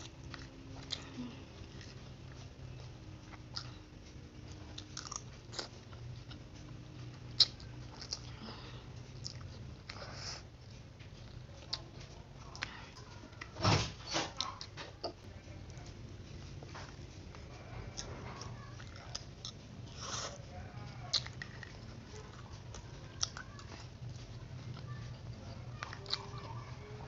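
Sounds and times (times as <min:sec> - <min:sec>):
chewing: 0:00.0 - 0:27.0
steady low hum: 0:00.0 - 0:27.0.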